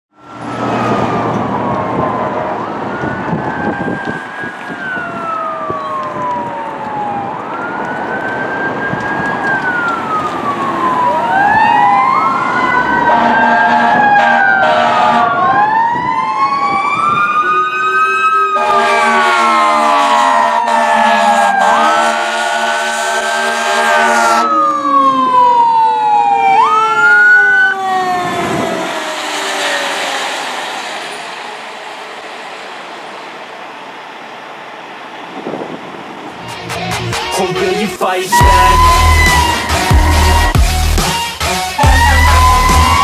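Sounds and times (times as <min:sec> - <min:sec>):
second siren: 0:00.1 - 0:34.5, 0:38.3 - 0:41.2, 0:41.8 - 0:43.0
fire engine siren wailing: 0:00.1 - 0:43.0
loud horn blaring: 0:13.0 - 0:15.6, 0:17.9 - 0:24.6, 0:27.8 - 0:32.7, 0:38.3 - 0:43.0.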